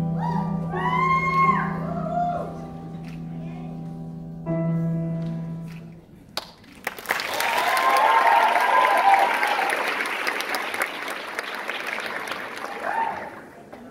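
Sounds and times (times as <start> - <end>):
audience applauding: 6.4 - 13.8
audience cheering: 7.0 - 13.6.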